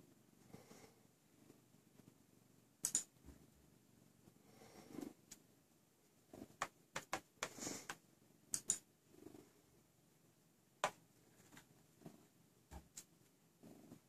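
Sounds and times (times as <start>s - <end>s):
cat paws tapping a screen: 6.6s - 8.0s.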